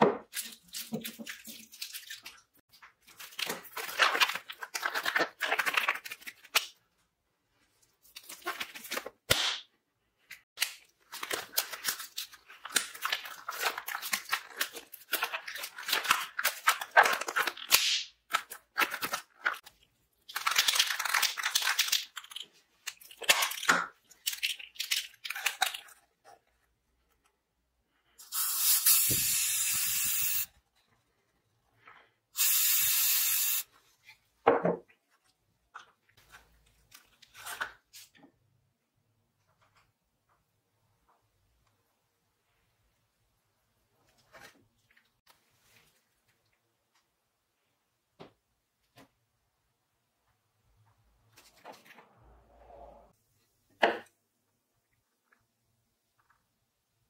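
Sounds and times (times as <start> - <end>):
disposable gloves crinkling: 0.4 - 6.8, 10.6 - 26.7
aerosol spray can hissing: 28.2 - 30.5.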